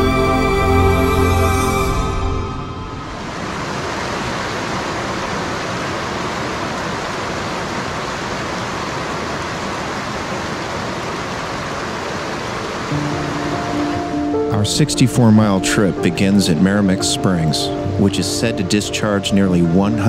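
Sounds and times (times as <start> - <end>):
stream rushing over rocks: 3.1 - 14.4.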